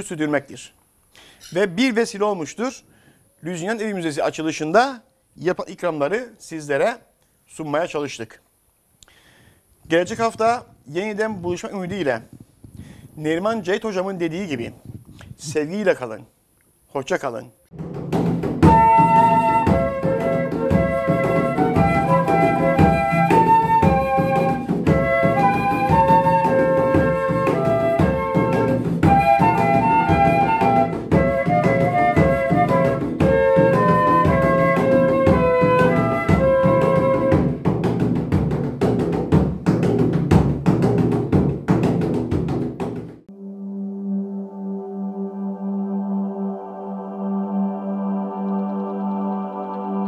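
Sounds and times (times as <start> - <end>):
drums and percussion: 17.7 - 43.3
melody: 43.3 - 50.0.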